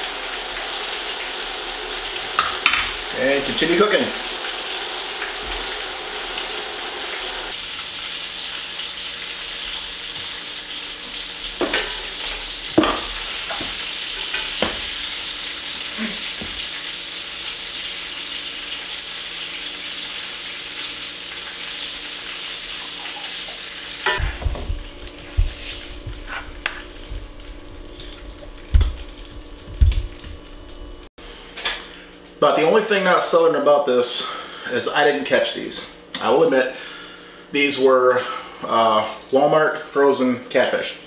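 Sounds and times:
fish sizzling in hot oil: 0:00.0 - 0:31.1.

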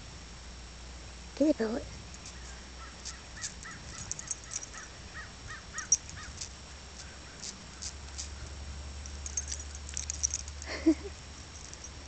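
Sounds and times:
sharp high ticks: 0:02.1 - 0:04.9.

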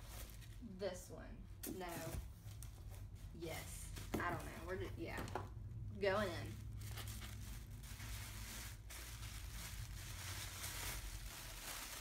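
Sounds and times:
paper and plastic rustling: 0:06.4 - 0:12.0.

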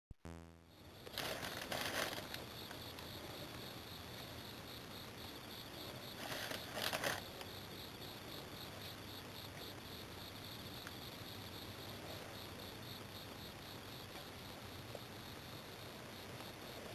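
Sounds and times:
crickets chirping: 0:00.6 - 0:16.9.

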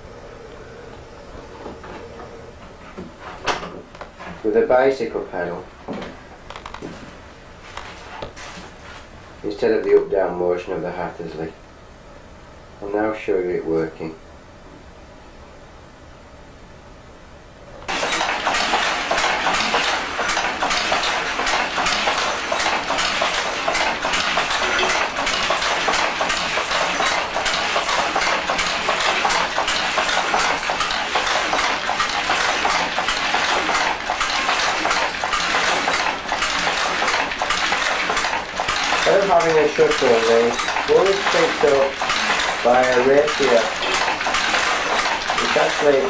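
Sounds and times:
loom clattering: 0:17.9 - 0:46.0.

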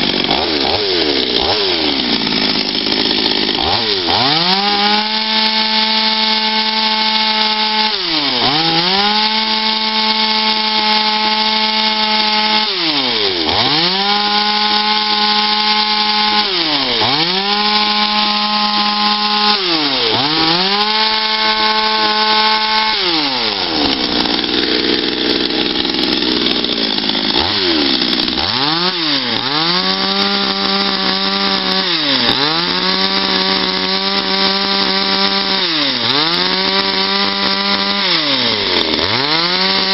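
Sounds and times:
chainsaw revving: 0:00.0 - 0:39.9.

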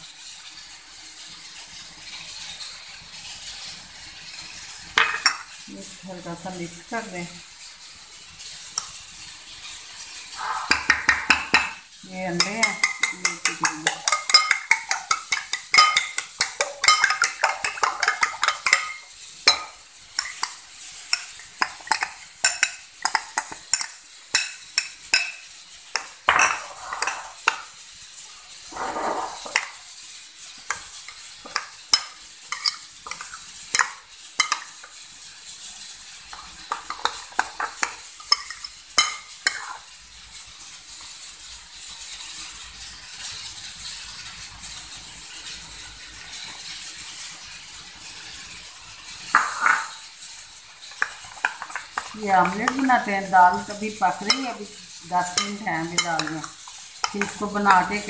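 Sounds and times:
wet stirring: 0:10.4 - 0:27.7, 0:28.7 - 0:29.9, 0:30.6 - 0:35.0, 0:36.3 - 0:40.0, 0:50.8 - 0:58.0
spoon clinking against bowl: 0:12.4 - 0:27.6, 0:31.1 - 0:34.7, 0:36.7 - 0:39.8, 0:53.5 - 0:54.6, 0:55.3 - 0:58.0.

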